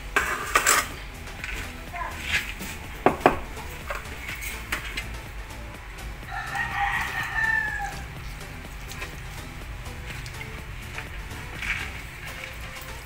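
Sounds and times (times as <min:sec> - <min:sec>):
rooster crowing: 0:06.2 - 0:08.2.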